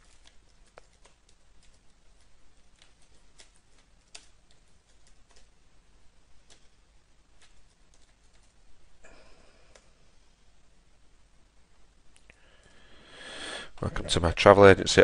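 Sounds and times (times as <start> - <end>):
computer keyboard typing: 0.0 - 5.5, 7.4 - 8.6.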